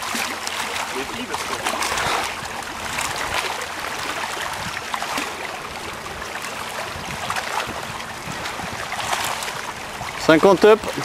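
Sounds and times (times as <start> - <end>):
water lapping against rocks: 0.0 - 11.0.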